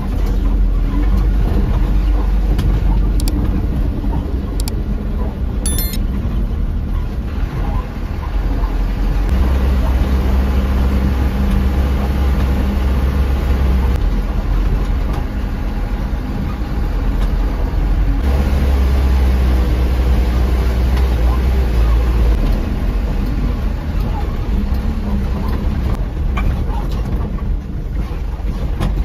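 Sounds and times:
road rumble: 0.0 - 29.0
truck diesel engine running: 6.5 - 28.8.

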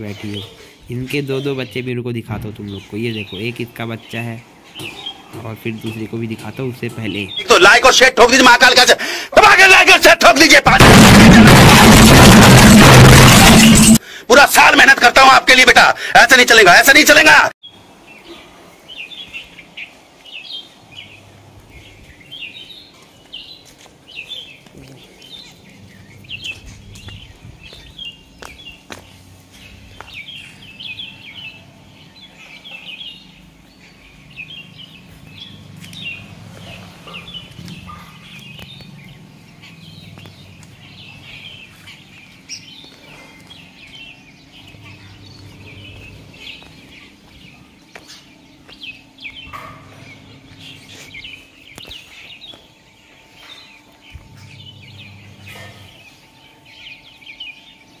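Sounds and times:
small birds chirping: 0.0 - 10.6, 13.2 - 58.0.

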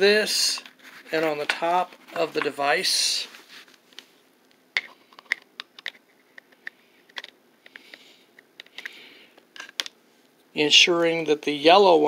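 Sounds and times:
soft rustle: 0.4 - 4.2.

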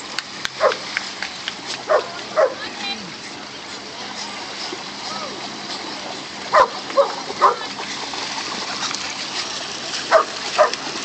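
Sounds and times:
water washing at shoreline: 0.0 - 11.0
dog barking: 1.9 - 2.6, 6.5 - 7.6, 10.1 - 10.8.

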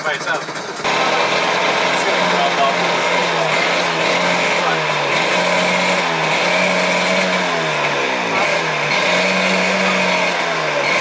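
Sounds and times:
jet ski engine running: 0.0 - 11.0.

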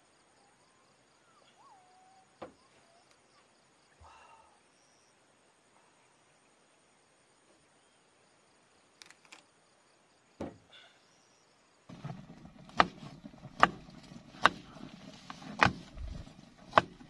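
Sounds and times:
faint clicks: 9.0 - 9.5
short thump: 10.4 - 10.6
knife chopping on cutting board: 13.6 - 13.8, 15.5 - 15.8.

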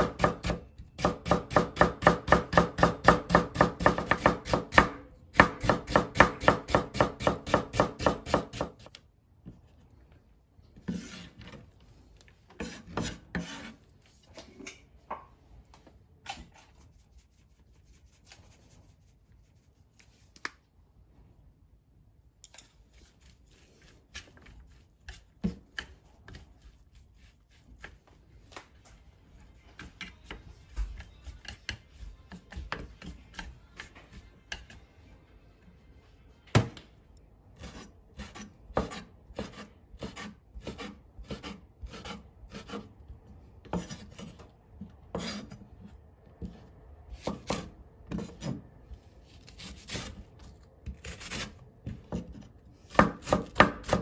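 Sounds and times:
knife chopping on wooden board: 0.0 - 8.8, 37.7 - 42.9, 50.8 - 54.0.

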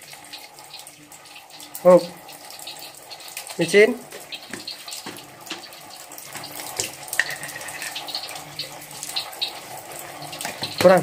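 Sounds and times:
glass jar clinking: 7.2 - 8.0.

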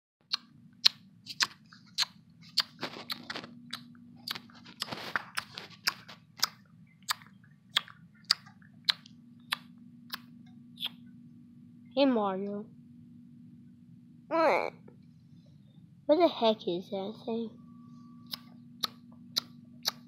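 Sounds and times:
low steady hum: 0.2 - 20.0
sharp clicks: 18.3 - 20.0.

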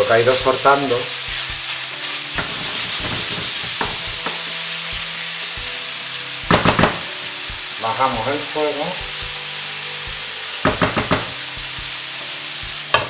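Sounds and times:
meat and vegetables sizzling: 0.0 - 13.0
spatula scraping pan: 0.4 - 12.0
spatula knocking against pan: 10.7 - 11.4.

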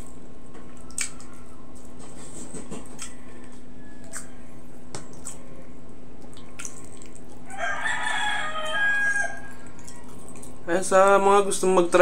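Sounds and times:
steady low hum: 0.0 - 12.0
eating by hand clicks: 0.8 - 1.9
rooster crowing: 3.2 - 4.6, 7.4 - 9.6.

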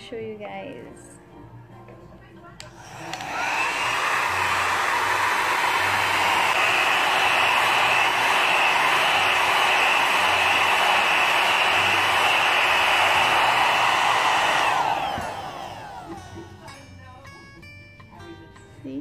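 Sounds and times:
hair dryer switch click: 2.6 - 3.7
hair dryer blowing: 2.6 - 16.6.

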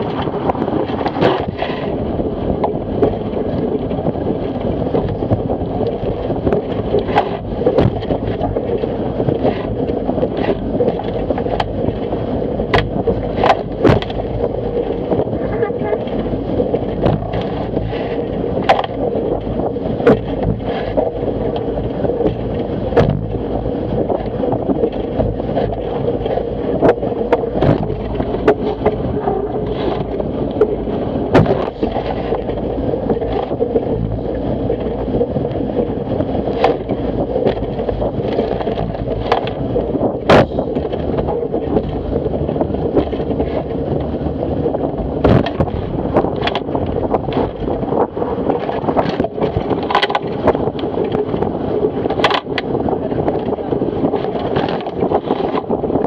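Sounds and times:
water rushing along hull: 0.0 - 56.0
wind buffeting microphone: 0.0 - 56.0
hull knocks and slaps: 5.0 - 12.0, 12.6 - 14.4, 16.7 - 18.0, 18.6 - 23.4, 24.0 - 29.0, 29.6 - 34.2, 36.5 - 39.6, 40.2 - 42.0, 45.2 - 47.7, 54.2 - 55.8.

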